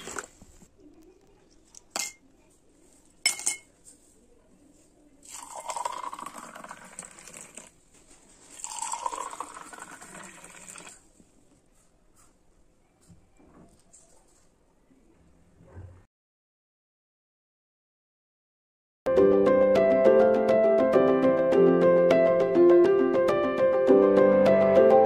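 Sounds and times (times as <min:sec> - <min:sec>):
clinks against glass: 0:03.3 - 0:03.7
juice pouring into glass: 0:05.2 - 0:07.8, 0:08.5 - 0:11.0.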